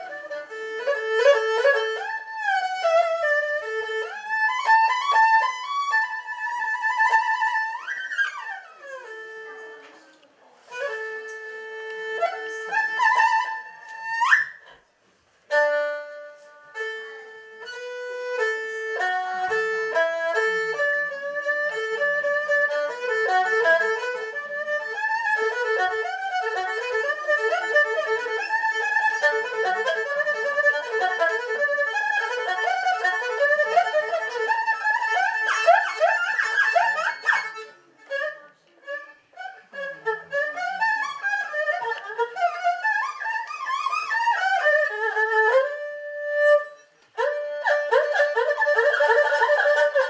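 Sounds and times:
bowed erhu solo: 0.0 - 50.0.

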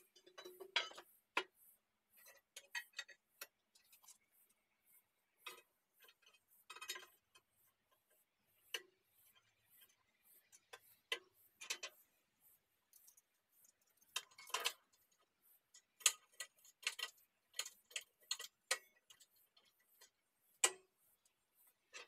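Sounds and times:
hand tools tapping on steel bucket: 0.0 - 1.6, 2.2 - 4.3, 13.0 - 20.9.

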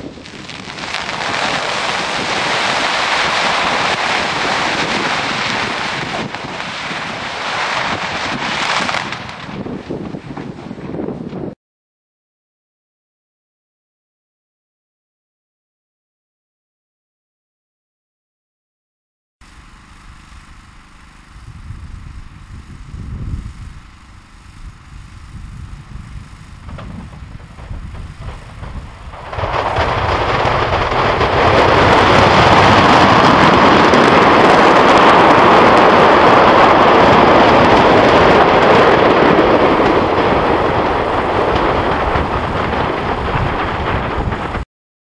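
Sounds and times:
fireworks exploding en masse: 0.0 - 11.2, 26.3 - 44.6
low rumbling: 19.4 - 44.6.

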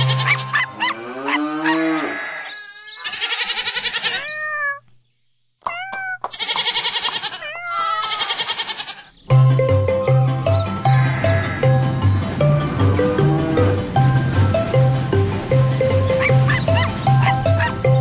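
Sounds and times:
cartoon cow mooing: 0.0 - 4.6
cartoon cat meowing: 3.1 - 4.8, 5.6 - 8.9.

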